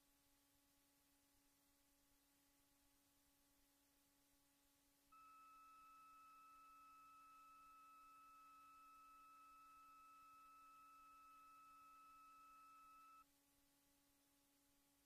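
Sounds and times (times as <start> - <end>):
faint low electronic hum: 0.0 - 15.0.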